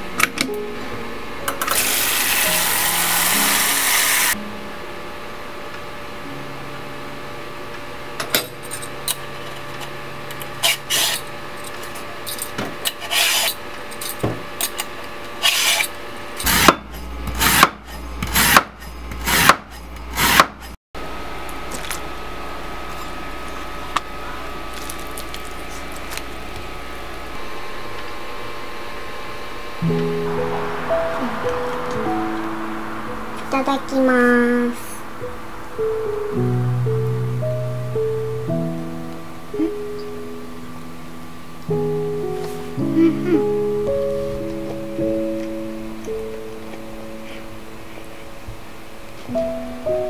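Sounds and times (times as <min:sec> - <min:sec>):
scraping strokes: 0:12.9 - 0:13.6.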